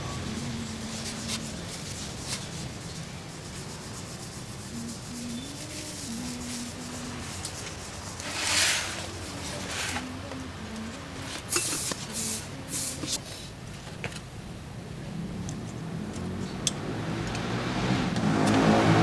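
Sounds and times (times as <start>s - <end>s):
hands rubbing brake parts: 0.3s - 13.2s.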